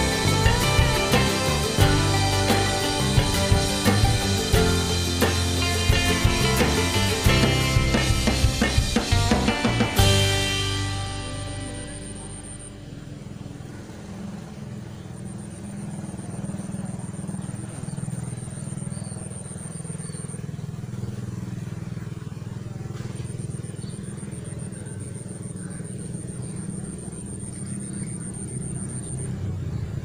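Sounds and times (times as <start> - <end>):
high pulsing whine: 0.0 - 30.0
small engine droning: 0.0 - 30.0.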